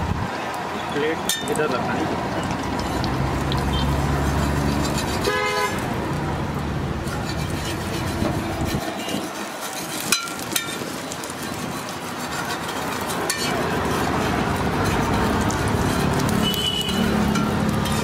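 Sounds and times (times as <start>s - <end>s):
omelette sizzling in oil: 1.5s - 18.0s
metal spatula clinking on griddle: 9.0s - 11.6s, 12.6s - 13.6s.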